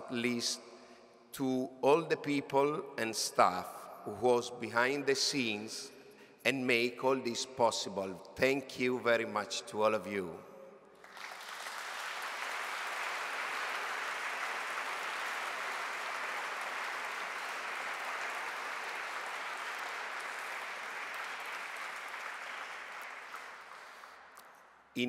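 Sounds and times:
audience applauding: 0:11.0 - 0:24.4.

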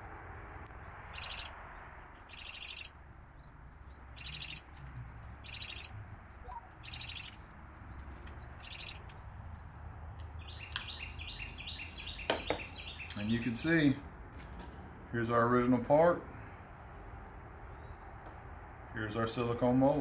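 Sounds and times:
animal chirping trill: 0:01.2 - 0:01.5, 0:02.3 - 0:02.9, 0:04.2 - 0:04.7, 0:05.4 - 0:09.1.

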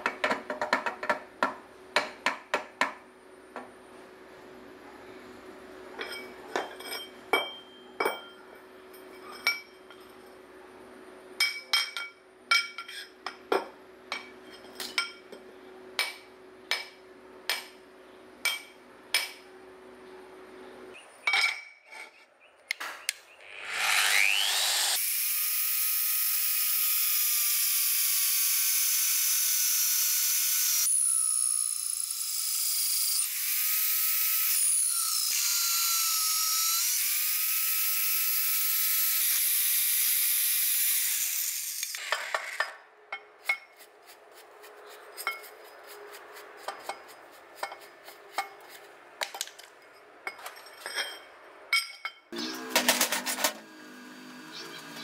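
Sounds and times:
electric drill boring into steel: 0:23.4 - 0:42.6, 0:52.4 - 0:55.0.

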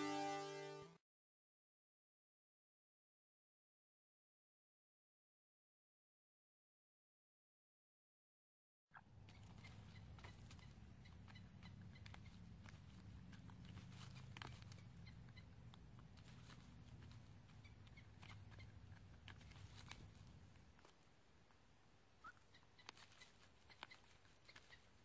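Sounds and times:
low steady hum: 0:00.0 - 0:01.0, 0:09.0 - 0:25.0
chickens pecking corn: 0:09.0 - 0:25.0.

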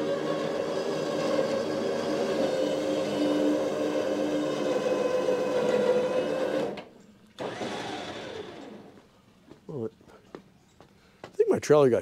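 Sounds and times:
vehicle engine under load: 0:07.4 - 0:09.0.

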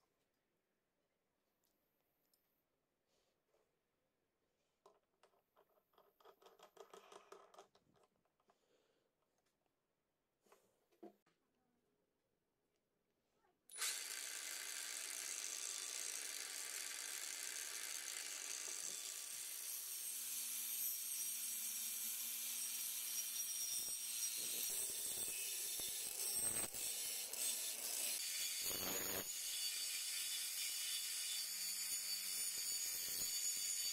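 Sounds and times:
angle grinder whining: 0:13.7 - 0:19.8, 0:22.5 - 0:29.5
grinding on metal tube: 0:23.7 - 0:29.3.

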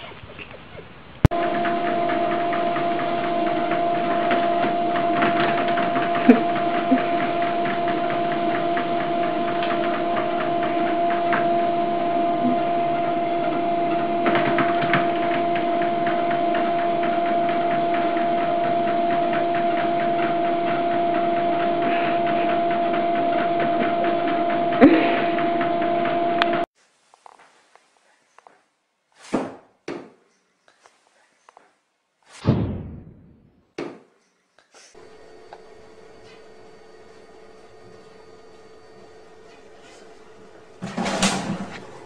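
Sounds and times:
treadmill motor whine: 0:01.3 - 0:26.7, 0:34.9 - 0:42.0.

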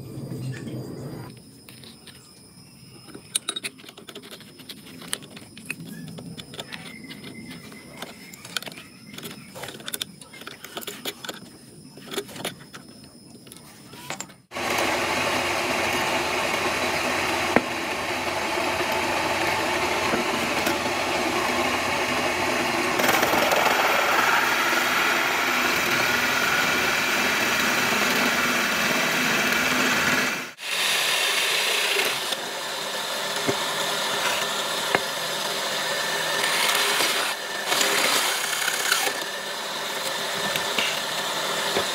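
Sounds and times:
drill press boring into wood: 0:14.0 - 0:41.9.

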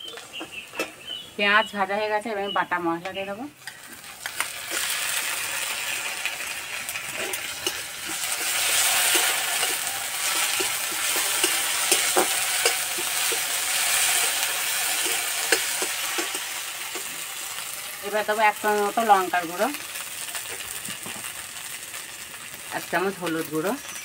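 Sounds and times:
onions sizzling in hot oil: 0:00.0 - 0:24.0
metal spatula scraping pan: 0:03.6 - 0:17.9.

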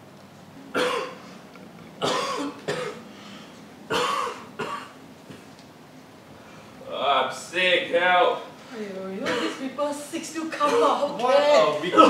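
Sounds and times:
man coughing through mask: 0:00.7 - 0:01.2, 0:02.0 - 0:03.0, 0:03.9 - 0:05.5, 0:09.2 - 0:09.6, 0:10.6 - 0:11.1.

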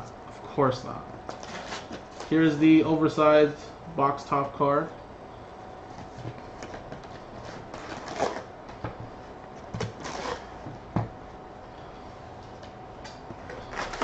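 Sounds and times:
card packs rustling: 0:13.4 - 0:14.0.

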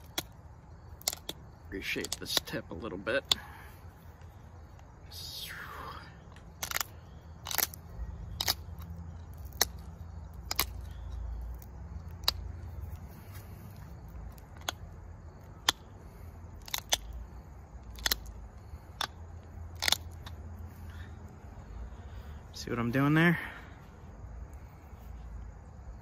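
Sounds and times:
flint flakes clicking off: 0:00.0 - 0:05.0, 0:06.2 - 0:20.5.

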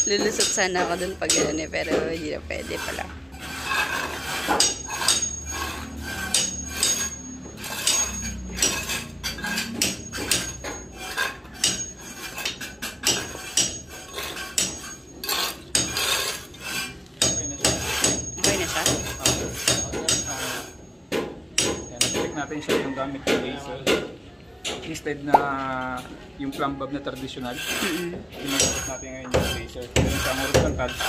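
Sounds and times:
hammer blows with metallic ring: 0:04.5 - 0:16.0, 0:17.2 - 0:24.1, 0:28.4 - 0:31.0.

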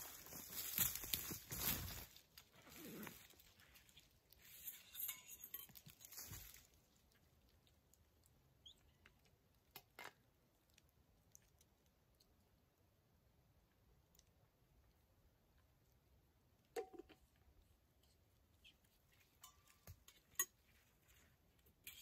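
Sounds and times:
leaves crunching underfoot: 0:00.0 - 0:03.6, 0:06.0 - 0:06.7.

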